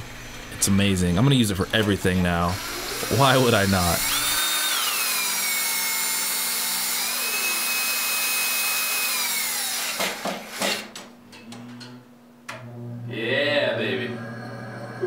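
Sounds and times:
cordless drill motor whining: 2.4s - 10.6s.

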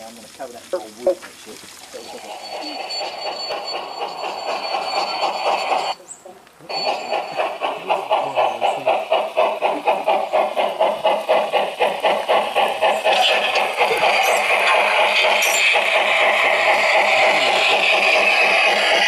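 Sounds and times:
model steam locomotive chuffing: 0.0s - 6.0s, 6.6s - 19.0s
sharp ticks: 6.9s - 19.0s.

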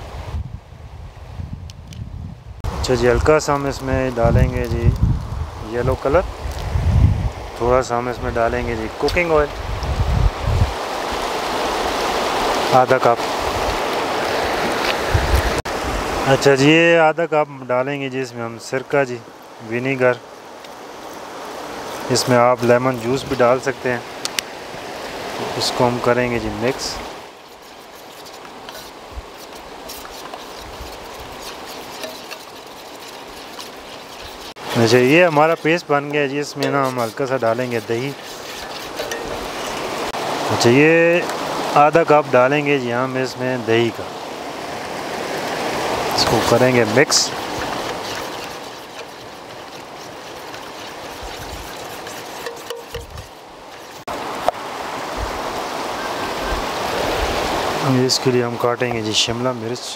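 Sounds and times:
stream rushing: 0.0s - 0.4s, 2.6s - 59.9s
metal spoon stirring marinade: 25.8s - 40.0s, 45.4s - 54.0s.

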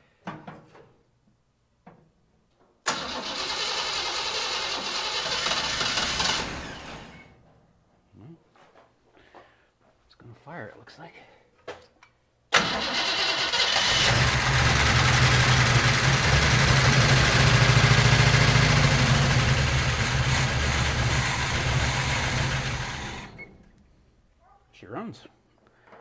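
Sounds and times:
pickup engine running: 13.8s - 23.5s.

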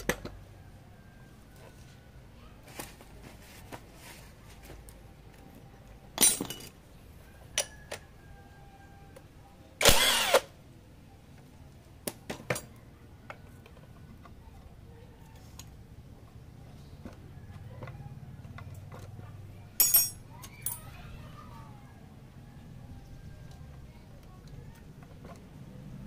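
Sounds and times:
metal tools clinking and scraping: 6.2s - 6.8s, 19.8s - 20.9s.

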